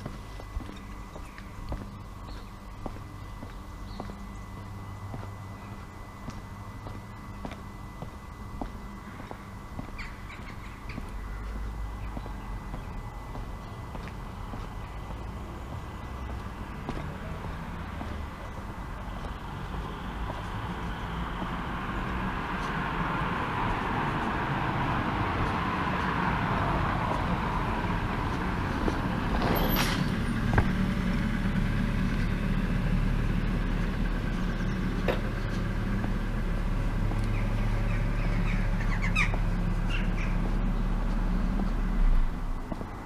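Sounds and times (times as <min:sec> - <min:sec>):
steady low hum: 0:00.0 - 0:43.0
car driving past: 0:15.2 - 0:42.9.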